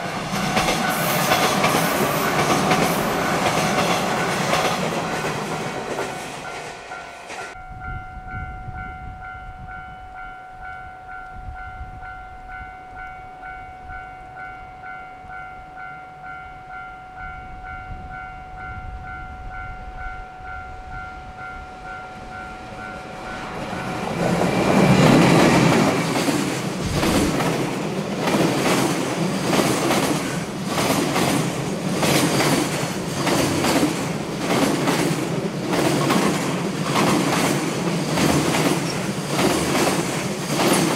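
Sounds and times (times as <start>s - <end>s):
level-crossing alarm ringing: 0.0s - 26.8s
electric locomotive and train passing: 0.0s - 40.9s
train wheels clacking over rail joints: 0.3s - 6.7s, 23.6s - 40.9s.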